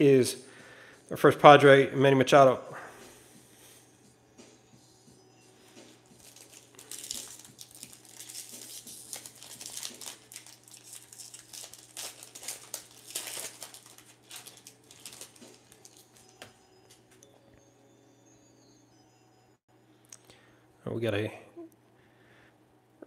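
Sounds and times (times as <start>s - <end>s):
foil wrapper tearing and crinkling: 6.2s - 16.4s.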